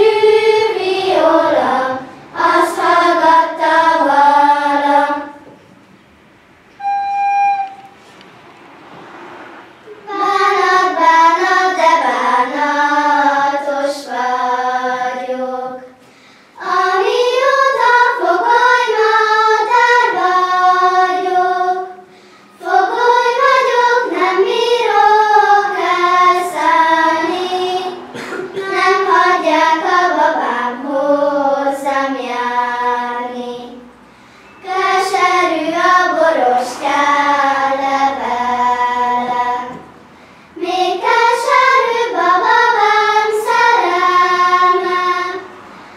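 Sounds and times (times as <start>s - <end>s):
children singing: 0.0s - 5.6s, 9.9s - 16.0s, 16.6s - 33.9s, 34.6s - 40.0s, 40.6s - 45.7s
short held note: 6.7s - 8.2s.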